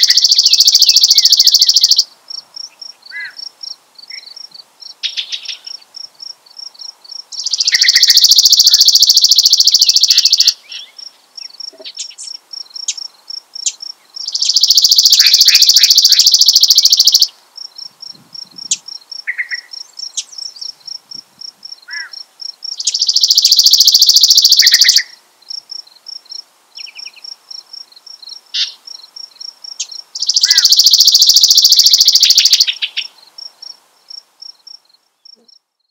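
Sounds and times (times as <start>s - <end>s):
bird short calls and slurred notes: 7.4s - 12.3s, 14.2s - 17.3s, 22.8s - 25.2s, 29.8s - 33.1s
sparrow high rapid trills: 7.5s - 10.6s, 14.4s - 17.3s, 22.8s - 25.1s, 30.2s - 32.8s.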